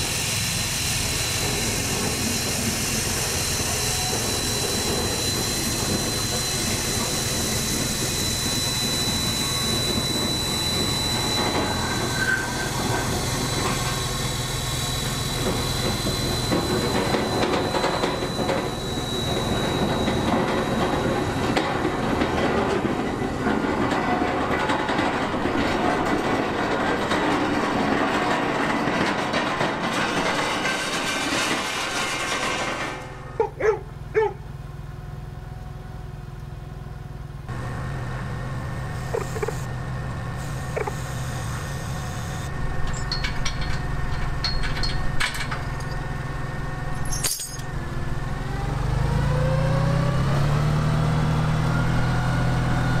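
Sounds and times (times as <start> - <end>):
trailer rattling: 0.8 - 33.4, 37.4 - 53.0
engine humming: 32.8 - 53.0
vehicle engine running: 33.6 - 42.8
short squeaks: 39.0 - 39.7
light clinks: 47.0 - 47.7.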